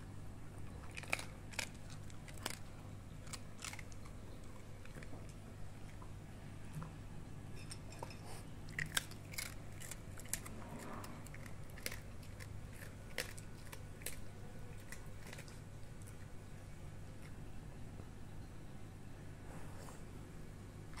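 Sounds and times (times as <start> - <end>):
dog crunching dry kibble: 0.5 - 6.9, 8.7 - 17.4.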